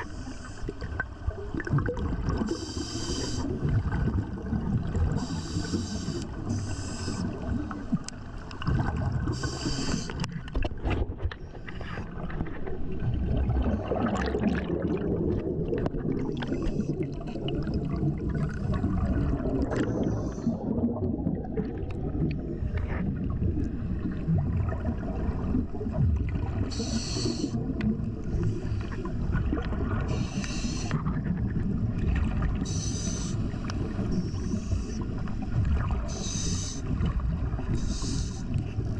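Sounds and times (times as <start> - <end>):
underwater water rumble: 0.0 - 38.9
diver exhaling bubbles: 0.8 - 6.2, 13.0 - 34.8.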